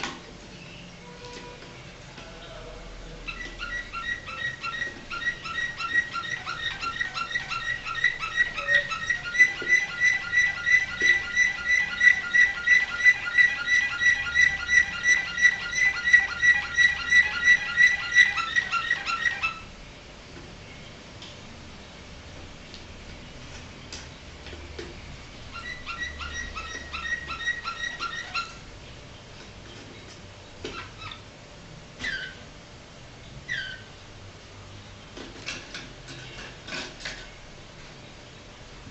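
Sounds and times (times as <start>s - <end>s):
canary singing: 0.5s - 19.8s, 25.2s - 31.3s, 32.0s - 32.5s, 33.3s - 34.2s.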